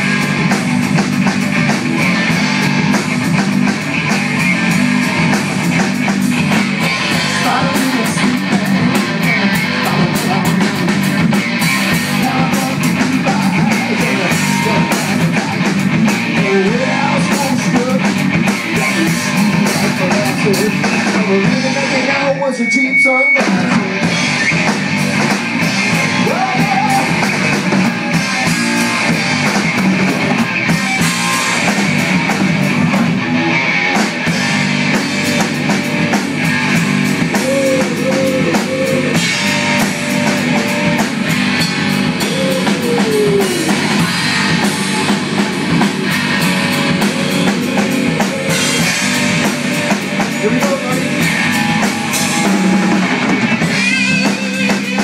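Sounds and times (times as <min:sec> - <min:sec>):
drum kit with cymbals: 0:00.0 - 0:55.0
electric guitar: 0:00.0 - 0:55.0.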